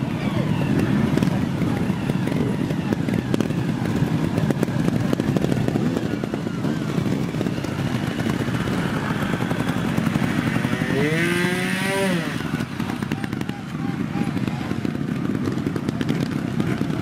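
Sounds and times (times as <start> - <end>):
motorcycle engines rattling: 0.0 - 17.0
motorcycle revving: 0.0 - 17.0.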